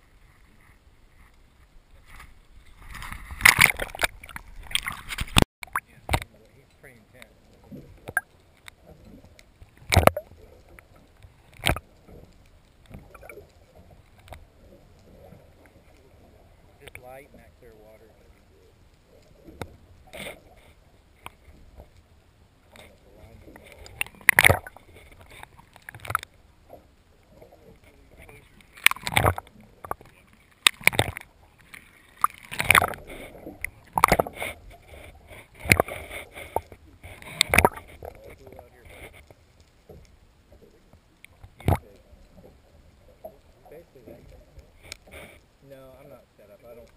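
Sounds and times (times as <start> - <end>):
underwater water murmur: 0.0 - 46.9
faint click: 16.8 - 17.0.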